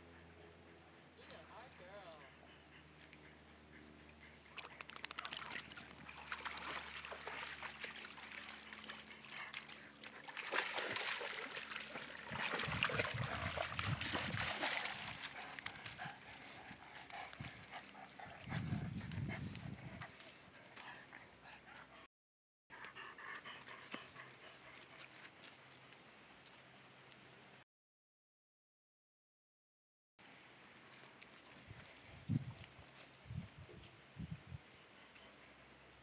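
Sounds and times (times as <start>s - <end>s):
dogs splashing through water: 3.9s - 18.8s
dogs scrambling onto muddy bank: 10.4s - 16.0s.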